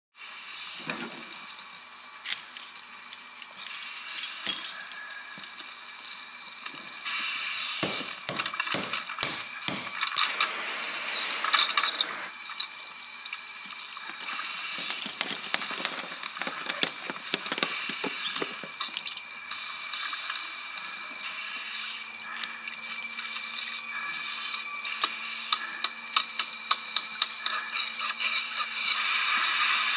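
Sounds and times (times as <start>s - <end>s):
high hiss: 7.0s - 12.3s.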